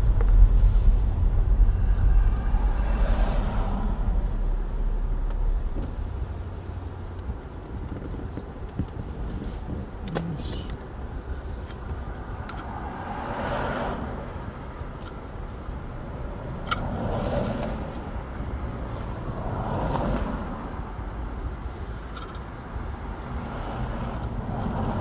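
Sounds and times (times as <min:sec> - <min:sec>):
low rumble: 0:00.0 - 0:08.4.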